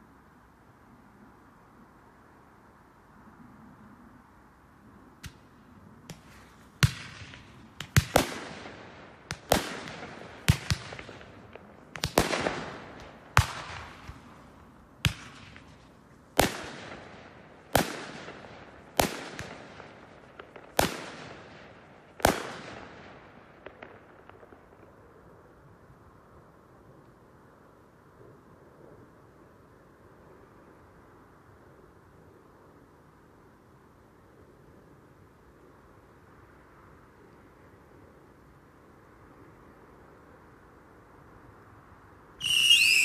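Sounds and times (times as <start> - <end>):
faint firework crackles: 5.2 - 28.4, 42.4 - 43.0
fireworks bangs: 6.1 - 15.8, 42.4 - 43.0.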